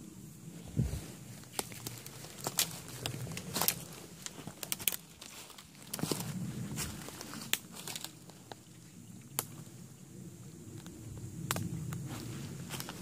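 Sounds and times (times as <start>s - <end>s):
footsteps crunching through dry leaves: 0.7s - 8.8s, 12.0s - 13.0s
sticks snapping: 1.5s - 5.3s, 7.4s - 8.2s, 9.3s - 9.6s, 11.5s - 11.7s.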